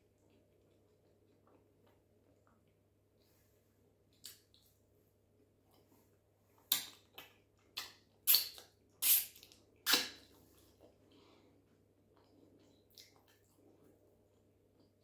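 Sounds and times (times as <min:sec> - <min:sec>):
lip smacks and finger sucking: 0:06.7 - 0:10.3.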